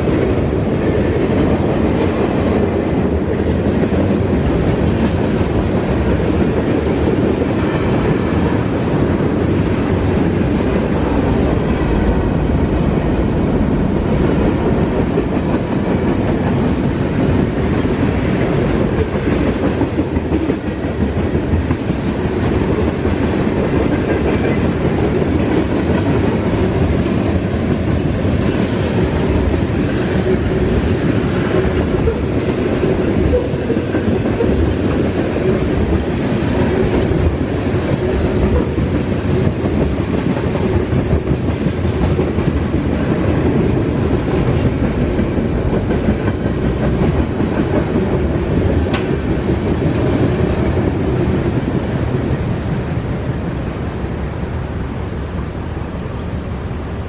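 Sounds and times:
freight train rumbling past: 0.0 - 57.0.

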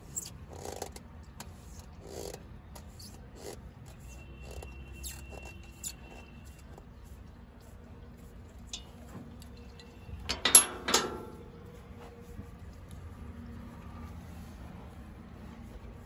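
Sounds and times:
faint thin squeak: 2.8 - 6.8
metal clatter: 8.7 - 11.5
hand tool clicking on metal: 10.3 - 11.4.

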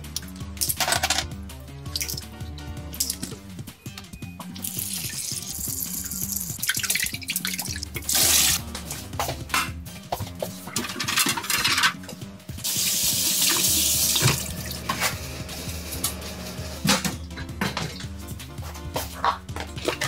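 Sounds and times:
pans and dishes clattering: 10.6 - 12.1, 16.8 - 18.2.

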